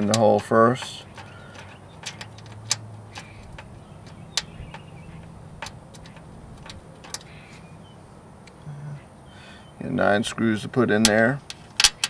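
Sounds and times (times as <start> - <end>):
light metallic screw clicks: 0.0 - 4.9, 5.6 - 7.6.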